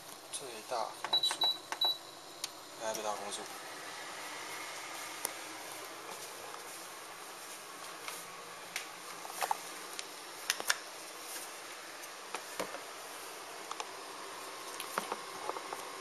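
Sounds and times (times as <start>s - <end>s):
air purifier fan hiss: 0.0s - 16.0s.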